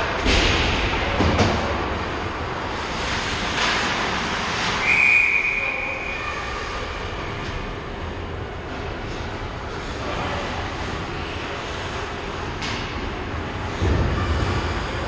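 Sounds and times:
referee's whistle blast: 0:04.8 - 0:06.1.

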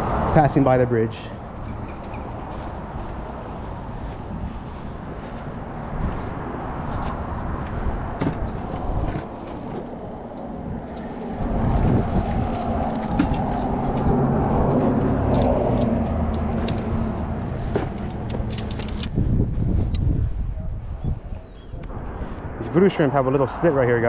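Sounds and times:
road traffic rumbling overhead: 0:00.0 - 0:24.0
fishing gear clicks and knocks: 0:15.0 - 0:19.2.

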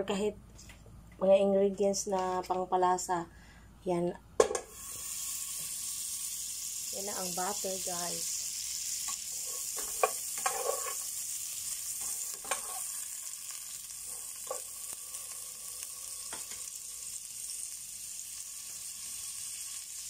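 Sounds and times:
butter sizzling in pot: 0:04.4 - 0:20.0
spatula knocking and scraping pot: 0:09.4 - 0:11.0, 0:12.0 - 0:12.8.

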